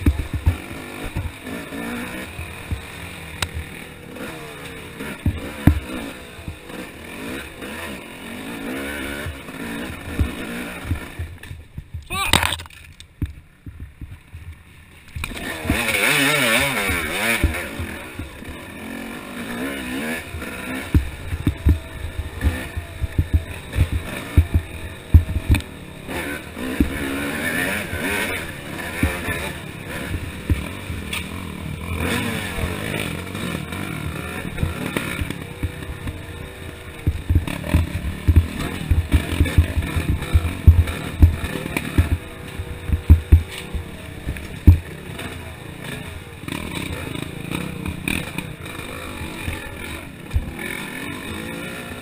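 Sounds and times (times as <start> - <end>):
bike knocking over bumps: 0.0 - 3.8, 5.0 - 6.7, 9.1 - 18.5, 20.2 - 25.8, 26.6 - 31.4, 32.0 - 45.2, 49.5 - 50.6
dirt bike engine revving: 0.0 - 52.0.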